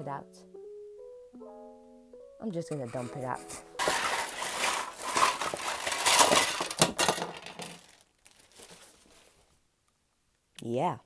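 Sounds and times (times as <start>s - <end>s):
plastic bag rustling: 2.8s - 9.6s
plastic toy track pieces clattering: 3.8s - 8.1s.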